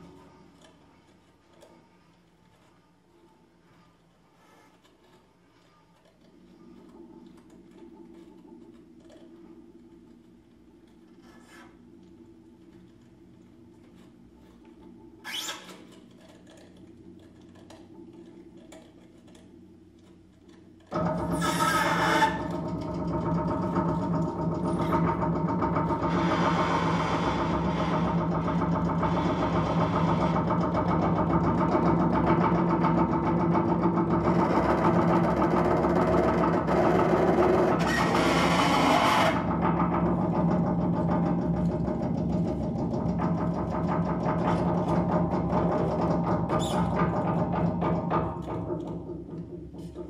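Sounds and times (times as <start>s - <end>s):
double bass: 21.0s - 50.0s.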